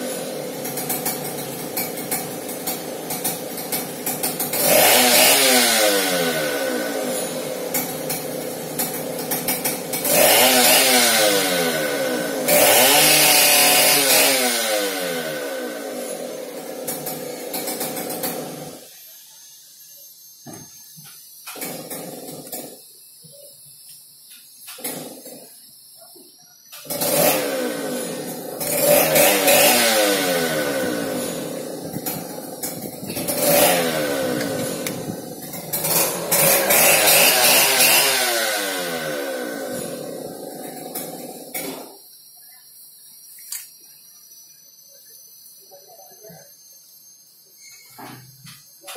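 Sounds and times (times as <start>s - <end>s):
small petrol engine revving: 0.0s - 19.1s, 21.4s - 22.9s, 24.6s - 25.6s, 26.7s - 42.0s.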